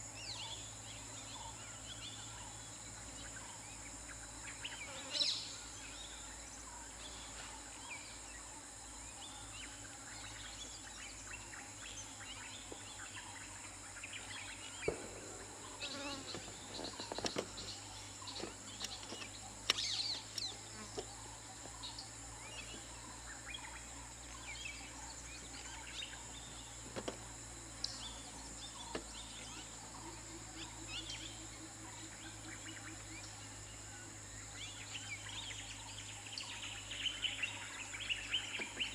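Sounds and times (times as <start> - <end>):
high insect drone: 0.0 - 38.9
bird chirps: 9.7 - 27.1.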